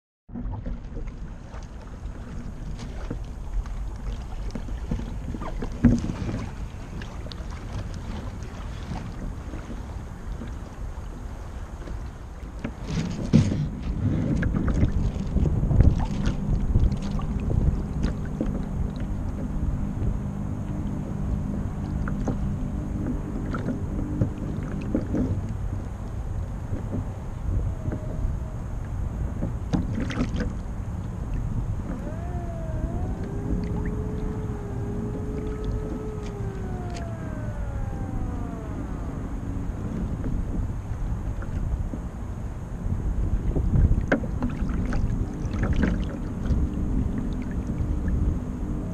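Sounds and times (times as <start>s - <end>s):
water splashing against hull: 0.3s - 48.9s
wind rumbling on microphone: 0.3s - 48.9s
faint gliding tone: 13.9s - 48.9s.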